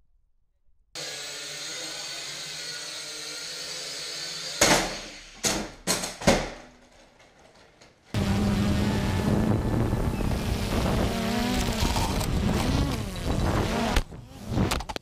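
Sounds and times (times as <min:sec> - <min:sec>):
drone motors whirring: 0:08.2 - 0:15.0
steady motor buzz: 0:08.2 - 0:15.0.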